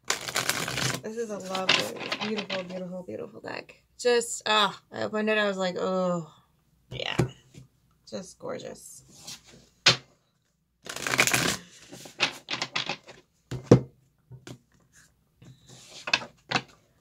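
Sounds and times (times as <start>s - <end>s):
cards being shuffled: 0.0s - 2.8s, 10.8s - 13.2s.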